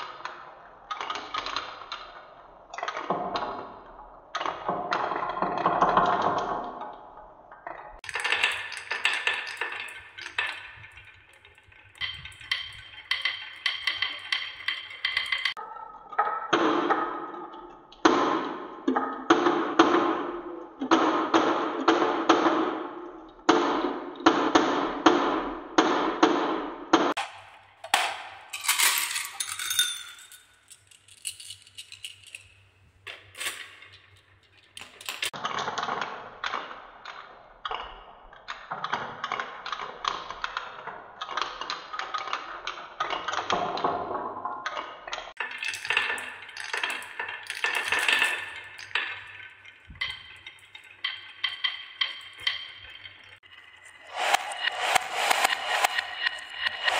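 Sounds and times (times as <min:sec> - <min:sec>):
marbles rolling on wooden tracks: 0:07.9 - 0:15.6, 0:27.2 - 0:35.4, 0:45.3 - 0:54.6
marbles clinking together: 0:08.0 - 0:15.6, 0:27.2 - 0:32.7, 0:45.4 - 0:54.2.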